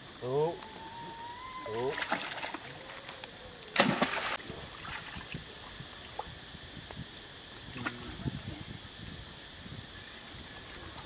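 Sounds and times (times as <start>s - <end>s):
faint high-pitched hum: 0.0s - 11.0s
monkeys splashing in water: 1.0s - 5.3s.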